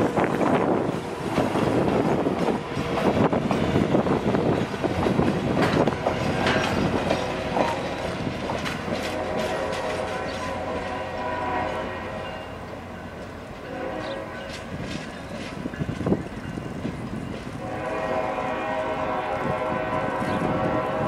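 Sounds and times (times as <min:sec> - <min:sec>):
train wheels clicking over rail joints: 0:00.0 - 0:11.2, 0:12.2 - 0:17.7
train rolling rumble: 0:00.0 - 0:21.0.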